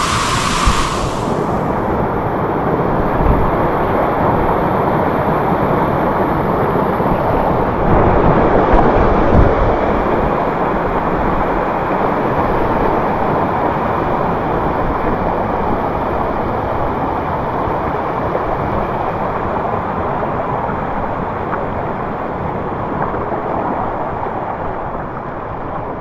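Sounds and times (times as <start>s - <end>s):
water rushing: 0.0s - 1.6s.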